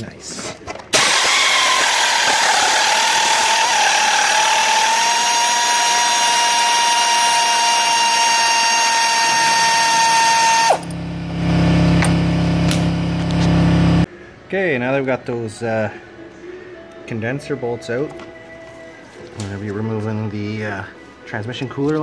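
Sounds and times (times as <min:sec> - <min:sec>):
power drill whining: 0:01.0 - 0:11.0
low steady hum: 0:10.7 - 0:14.3.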